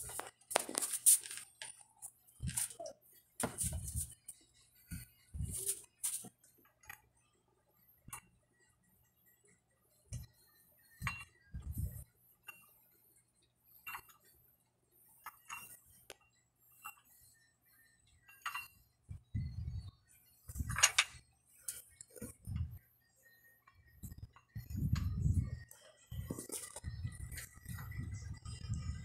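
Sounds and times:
dumbbell plates clinking: 0:18.2 - 0:19.0, 0:20.6 - 0:21.2.

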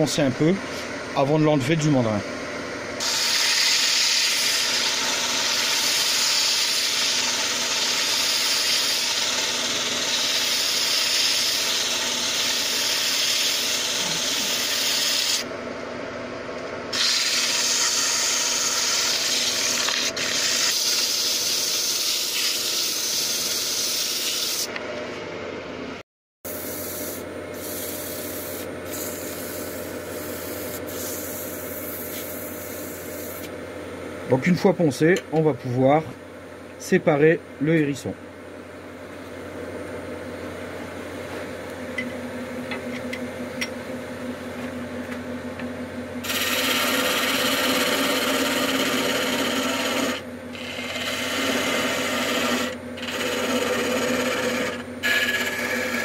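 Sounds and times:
wood lathe humming: 0:02.8 - 0:15.5, 0:16.9 - 0:24.7, 0:46.2 - 0:56.0
sandpaper hissing on spinning wood: 0:03.0 - 0:15.4, 0:16.9 - 0:24.7, 0:26.5 - 0:33.5, 0:46.2 - 0:56.0.

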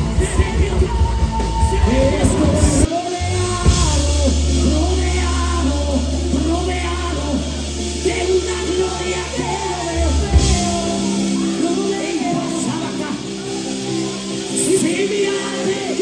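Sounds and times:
voices singing: 0:00.0 - 0:16.0.

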